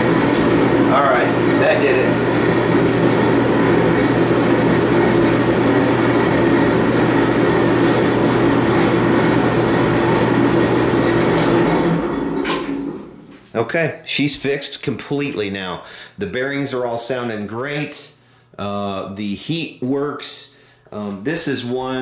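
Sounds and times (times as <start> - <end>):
dryer blower rushing: 0.0 - 13.4
clothes dryer drum humming: 0.0 - 13.6.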